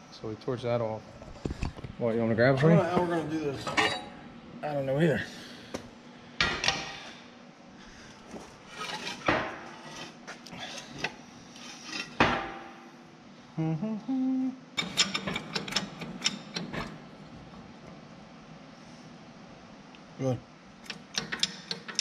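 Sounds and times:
metal clanks ringing: 0:03.6 - 0:04.1.

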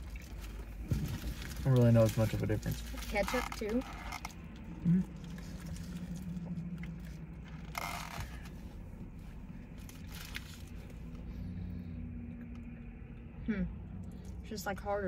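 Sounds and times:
chewing: 0:00.0 - 0:14.4
steady low hum: 0:00.0 - 0:15.0.

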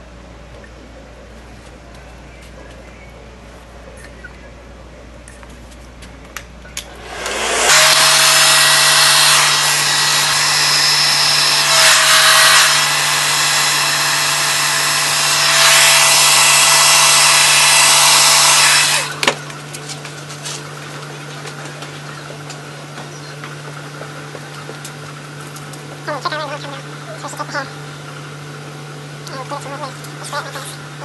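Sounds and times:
hair dryer blowing: 0:06.9 - 0:19.5.

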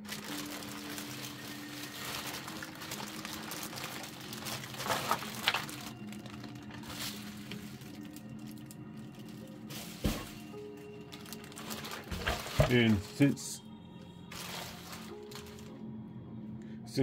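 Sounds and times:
plastic bags crinkling: 0:00.0 - 0:13.5, 0:14.2 - 0:15.8.

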